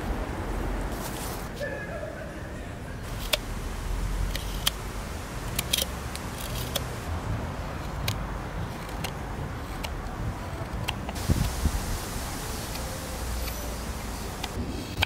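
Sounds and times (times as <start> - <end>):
steady low rumble: 3.0 - 15.0
carving knife slicing wood: 4.2 - 4.8, 5.4 - 7.0, 7.8 - 11.2.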